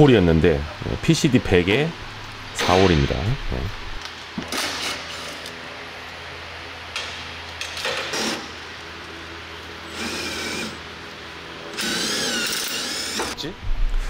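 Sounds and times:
steady low hum: 0.0 - 14.0
cordless power tool whirring: 7.9 - 8.6, 9.8 - 11.0, 11.7 - 13.4.

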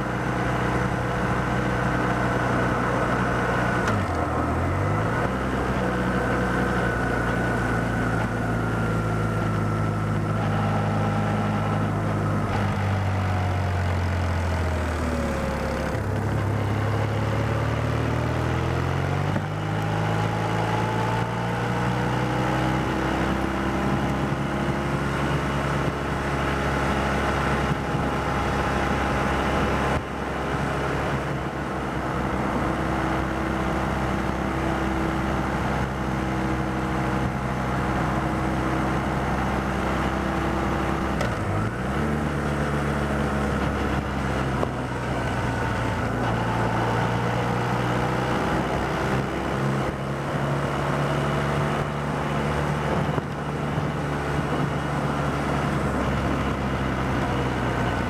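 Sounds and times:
motorcycle engine cruising: 0.0 - 58.0
rushing wind noise: 22.1 - 58.0.

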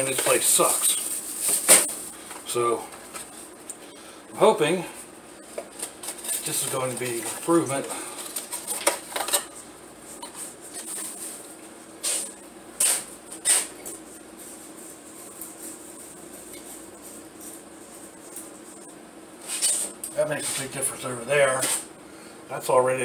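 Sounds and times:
cardboard packaging crinkling: 0.0 - 2.2, 5.7 - 9.6.

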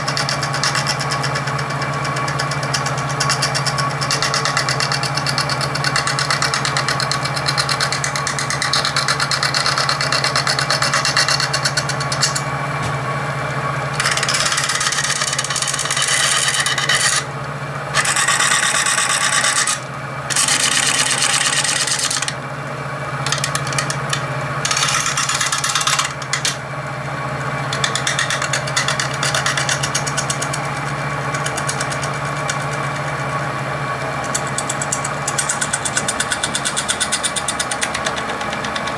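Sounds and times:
lathe humming: 0.0 - 38.9
gouge rasping on epoxy: 2.8 - 12.4, 14.0 - 17.3, 18.0 - 22.4, 23.3 - 26.6, 27.7 - 30.8, 34.3 - 38.9.

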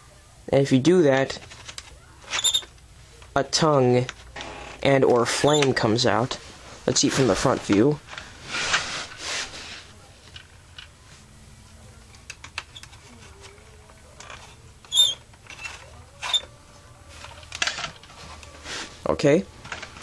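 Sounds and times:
plastic toy rustling: 1.3 - 11.3, 11.9 - 20.0.

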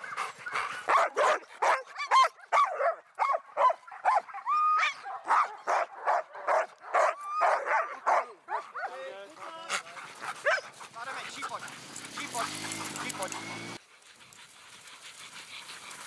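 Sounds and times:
dogs barking and yipping: 0.0 - 16.0
dogs whining: 9.7 - 13.8.

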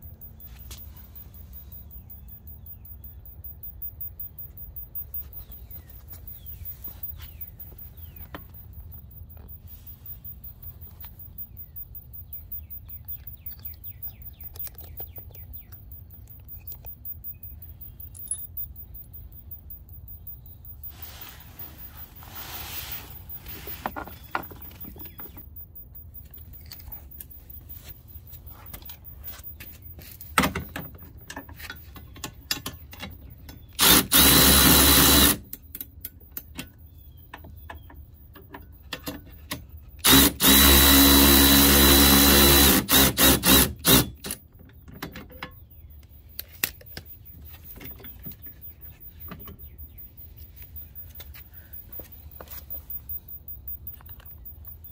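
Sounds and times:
cordless ratchet whining: 33.7 - 35.6, 40.0 - 44.4.

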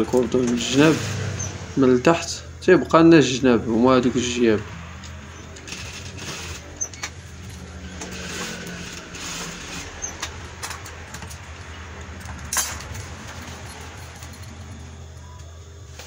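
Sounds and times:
sewing machine motor humming: 5.0 - 11.8.

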